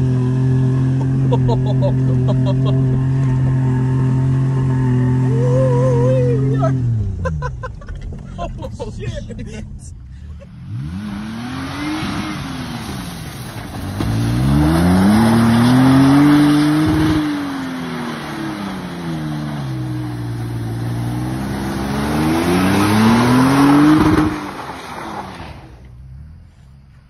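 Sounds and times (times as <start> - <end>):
pickup truck engine revving: 10.4 - 25.6.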